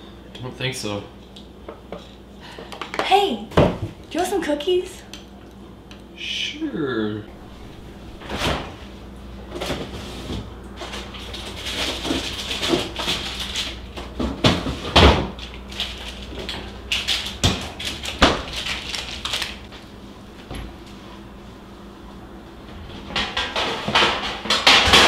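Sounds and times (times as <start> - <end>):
refrigerator door opening: 7.3 - 8.9
items knocking and rattling: 9.5 - 19.7, 22.7 - 25.0.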